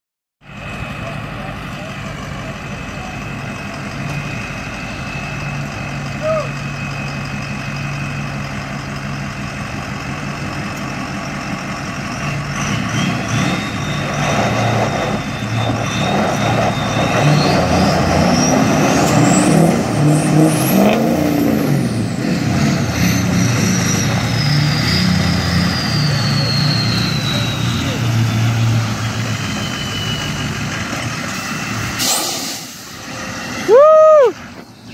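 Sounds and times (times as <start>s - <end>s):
truck engines revving under load: 0.5s - 34.9s
high whine: 13.2s - 34.9s.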